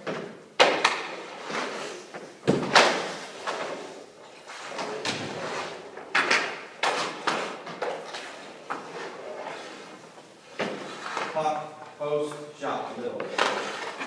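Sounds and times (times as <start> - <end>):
hockey sticks and pucks clacking: 0.0 - 11.6, 12.2 - 14.0.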